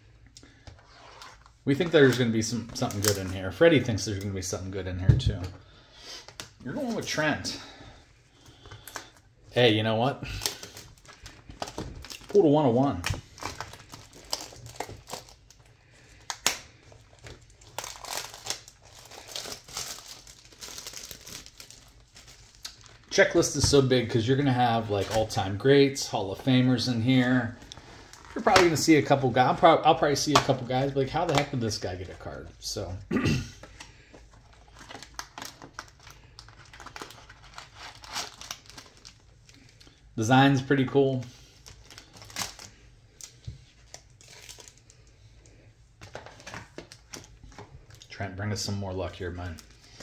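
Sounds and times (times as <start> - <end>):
plastic wrapper crinkling: 1.2 - 4.4, 10.2 - 32.3, 33.6 - 40.1, 41.4 - 48.2, 49.1 - 50.0.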